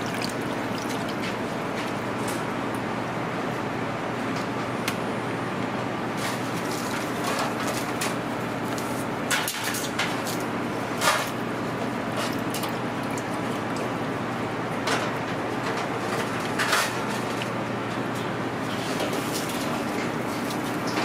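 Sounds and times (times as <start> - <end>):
kitchen hum and hiss: 0.0 - 21.0.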